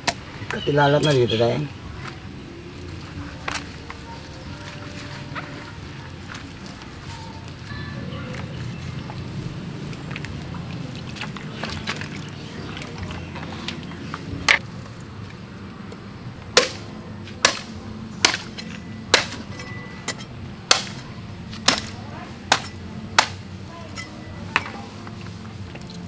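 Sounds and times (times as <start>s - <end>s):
heavy blade chopping meat and bone: 16.6s - 19.5s, 20.1s - 21.0s, 21.6s - 23.4s.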